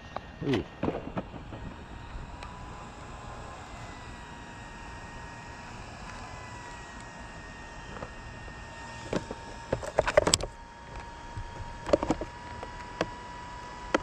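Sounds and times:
clicks and rattles: 9.1 - 11.1.

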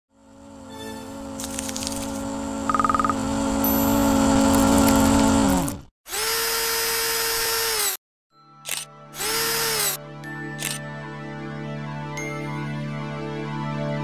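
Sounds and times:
steady buzzing tone: 0.1 - 5.8.

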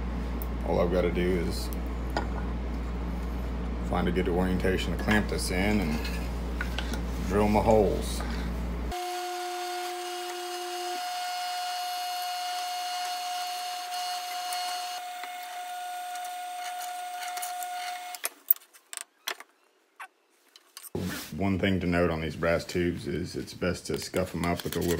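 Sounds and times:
drill press whining: 8.9 - 18.2.

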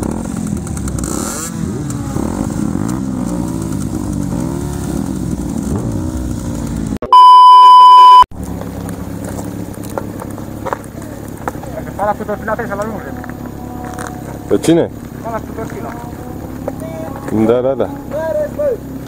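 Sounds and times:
motorcycle engines idling: 0.0 - 7.0, 8.4 - 19.0
motorcycle throttle blips: 0.0 - 19.0
electronic bleep: 7.0 - 8.3.

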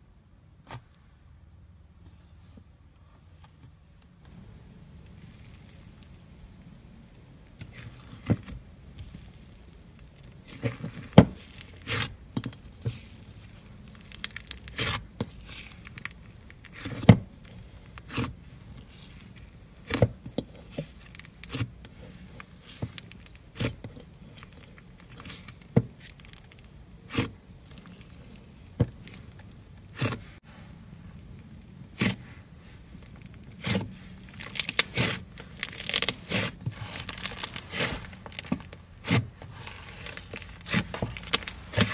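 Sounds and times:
slime crackling and tearing: 5.0 - 6.2, 7.3 - 30.4, 32.9 - 41.9.

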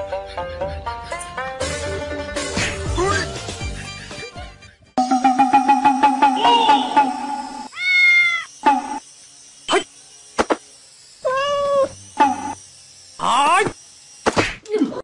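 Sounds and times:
steady electronic tone: 5.0 - 7.8
baby monkey coo calls: 5.3 - 9.0.

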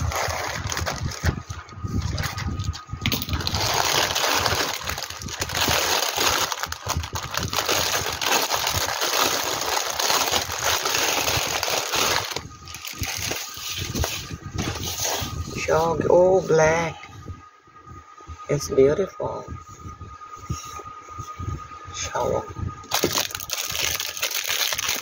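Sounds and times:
plastic packaging crinkling: 0.0 - 15.2, 22.9 - 25.0.

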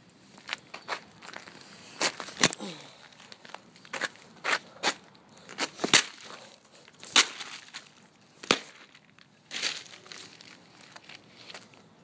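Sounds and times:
pumpkin being smashed: 5.8 - 6.3, 7.0 - 7.8.

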